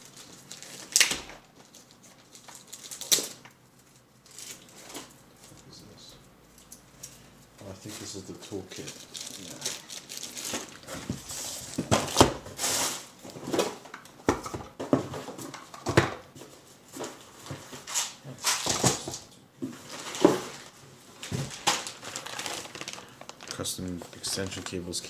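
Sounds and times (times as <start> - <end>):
packaging crinkling and tearing: 0.0 - 5.1, 8.0 - 13.8, 19.9 - 25.0.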